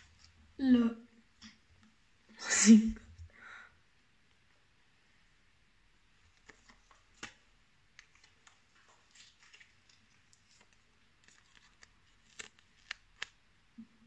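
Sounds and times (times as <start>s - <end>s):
sticker peeling off paper: 8.0s - 13.4s.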